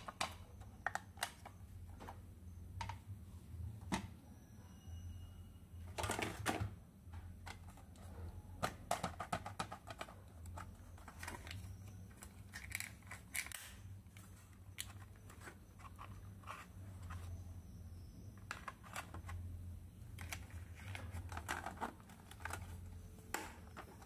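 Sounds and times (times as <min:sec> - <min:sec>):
plastic toy pieces clicking: 0:12.2 - 0:13.7.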